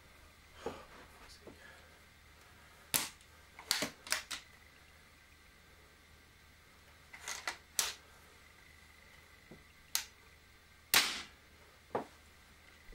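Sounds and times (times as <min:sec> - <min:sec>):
air rifle sharp metallic clicks: 0:02.9 - 0:04.5, 0:09.9 - 0:10.2.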